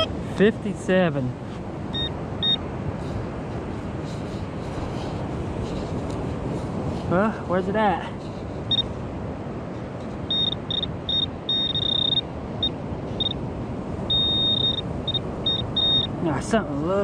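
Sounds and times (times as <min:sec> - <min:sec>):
metal detector pinpointer beeping: 0:01.9 - 0:02.6, 0:08.7 - 0:08.9, 0:10.3 - 0:13.4, 0:14.1 - 0:16.2.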